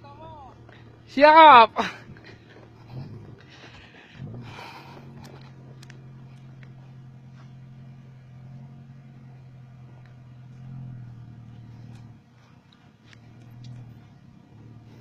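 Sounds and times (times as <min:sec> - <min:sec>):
van engine running under load: 0:00.0 - 0:15.0.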